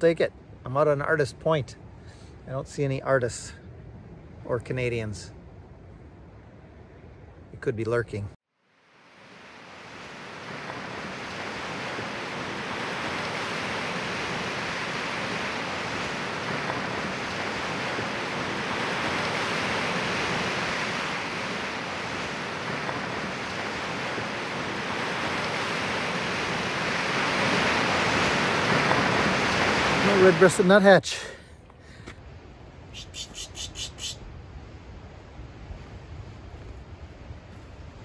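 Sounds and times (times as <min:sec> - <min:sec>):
waves breaking on rocks: 0:09.6 - 0:30.8.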